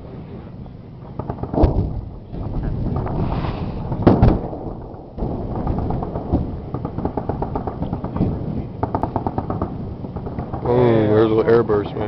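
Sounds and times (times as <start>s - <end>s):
distant weapons fire booms: 1.2s - 10.7s
wind on microphone: 1.4s - 10.6s.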